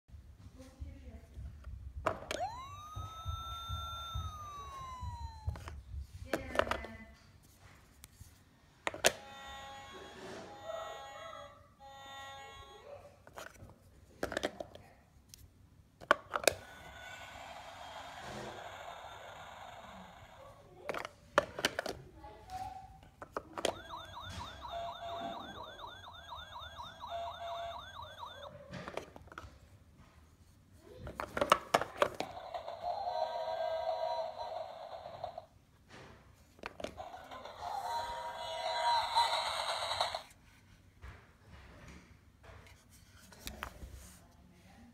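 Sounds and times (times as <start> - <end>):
toy fire engine siren: 2.2 - 5.8, 9.1 - 12.9, 16.6 - 20.5, 23.5 - 28.6, 32.2 - 35.4, 37.0 - 40.3
electronic ambulance siren: 2.3 - 5.8, 23.6 - 28.6.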